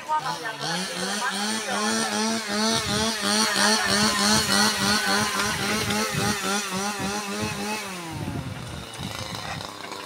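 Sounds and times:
small petrol engine running: 0.0s - 10.0s.

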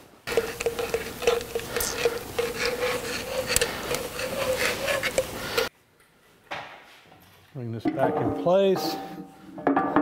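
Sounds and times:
metal rubbing and scraping: 0.3s - 5.7s.

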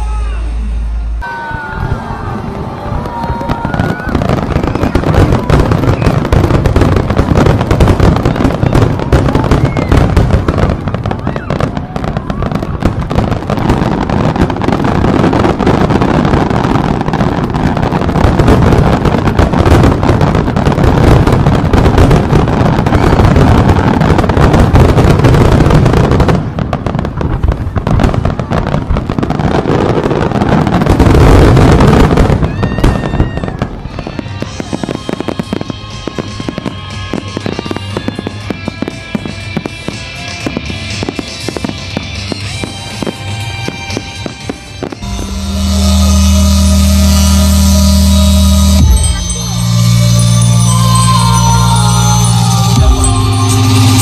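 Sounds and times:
fireworks bursting and crackling: 0.0s - 54.0s
music with sustained notes: 33.9s - 54.0s.

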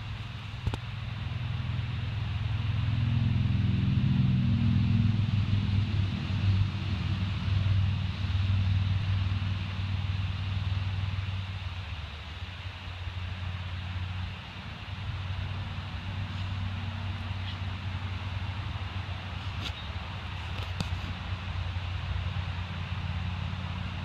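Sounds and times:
low engine rumble: 0.0s - 24.0s
high hiss: 4.9s - 24.0s.

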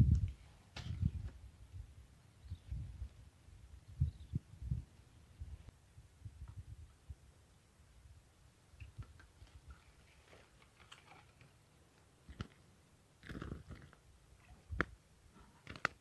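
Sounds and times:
rustling: 9.0s - 12.6s.

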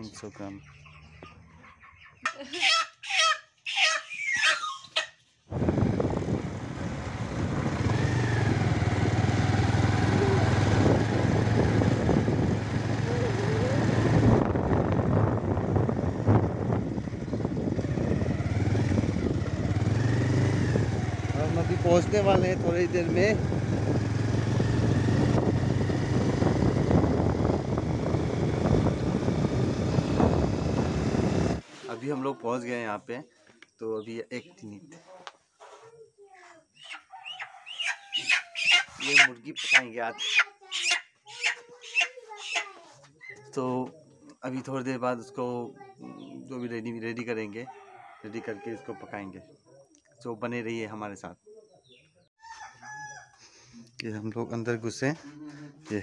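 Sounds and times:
chicken squawking: 0.6s - 5.2s, 36.8s - 43.4s
motorbike engine droning: 5.5s - 31.6s
wind rushing over microphone: 5.5s - 31.6s.

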